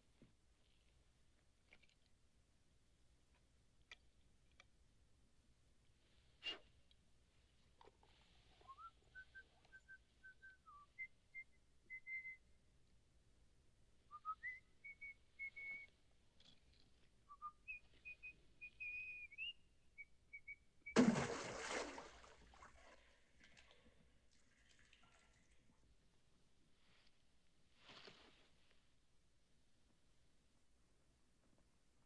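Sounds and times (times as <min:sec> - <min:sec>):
man whistling a tune: 0:08.7 - 0:12.4, 0:14.1 - 0:15.9.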